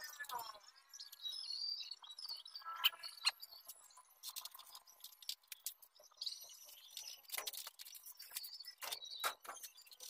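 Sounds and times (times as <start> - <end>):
high chirping: 0.0 - 10.0
clicks and taps on plastic pipe: 6.9 - 10.0.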